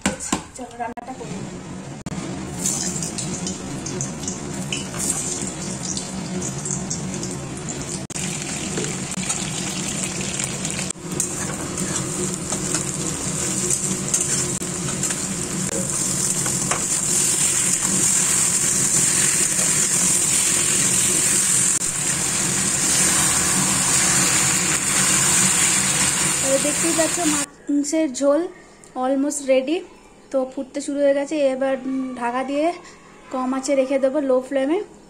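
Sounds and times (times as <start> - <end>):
oil sizzling in pan: 2.4 - 27.5.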